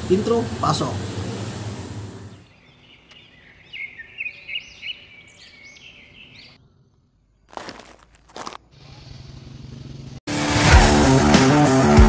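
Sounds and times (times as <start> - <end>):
birds chirping and singing: 2.3 - 7.0.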